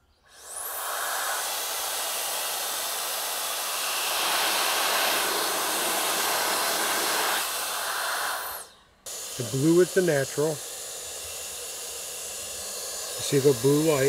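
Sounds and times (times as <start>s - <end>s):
pet dryer fan blowing air: 0.3s - 14.0s.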